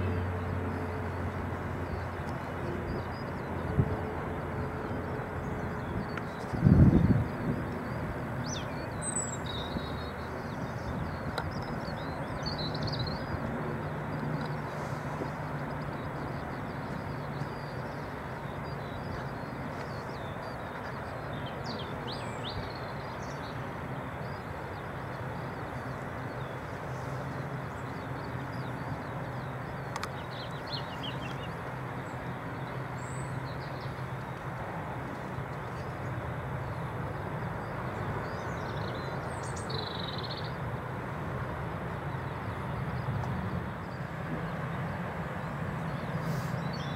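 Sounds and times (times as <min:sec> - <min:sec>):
jet engines rumbling: 0:00.0 - 0:46.9
small birds chirping: 0:04.8 - 0:40.8.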